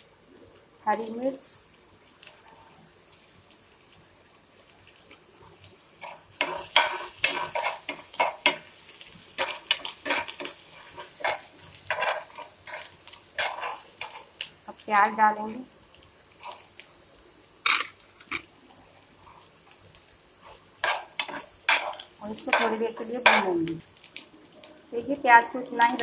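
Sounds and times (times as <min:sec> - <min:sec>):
food sizzling in oil: 0:00.0 - 0:26.0
spoon scraping and knocking pan: 0:06.0 - 0:14.8, 0:20.4 - 0:23.8.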